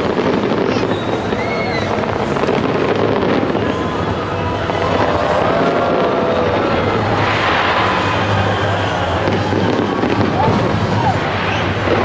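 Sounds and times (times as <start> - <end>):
fireworks crackling: 0.0 - 12.0
faint gliding whistles: 0.6 - 2.0, 6.3 - 10.2
low rumble: 3.5 - 12.0.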